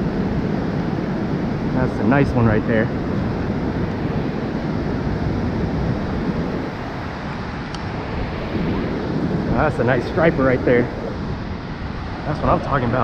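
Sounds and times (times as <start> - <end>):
ocean surf on sandy beach: 0.0 - 13.0
wind buffeting microphone: 0.0 - 13.0.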